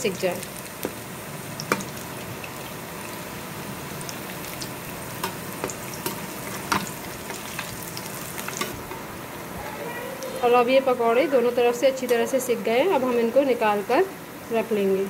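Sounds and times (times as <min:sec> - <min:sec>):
food deep-frying in oil: 0:00.0 - 0:09.5
spoon stirring in oil: 0:04.1 - 0:08.9.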